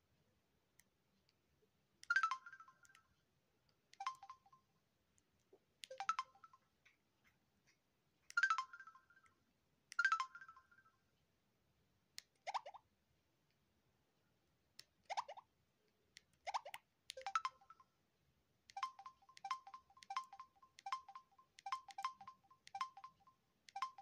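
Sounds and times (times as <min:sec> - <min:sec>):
phone key tones: 0:03.9 - 0:04.6, 0:16.5 - 0:17.9, 0:18.7 - 0:24.0
rising electronic chirp: 0:18.8 - 0:24.0.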